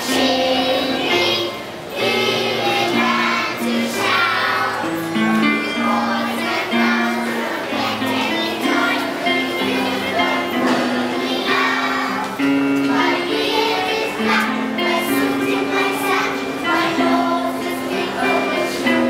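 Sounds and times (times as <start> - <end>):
children's choir singing: 0.0 - 19.0.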